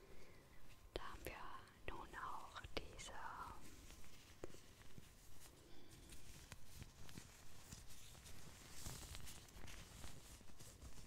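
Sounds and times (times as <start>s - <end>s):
latex gloves crinkling: 2.9s - 11.0s.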